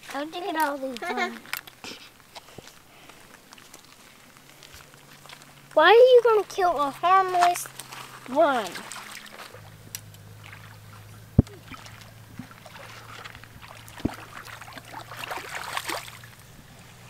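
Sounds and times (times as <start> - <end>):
steady low hum: 0.0 - 17.0
toddler splashing in water: 6.1 - 16.4.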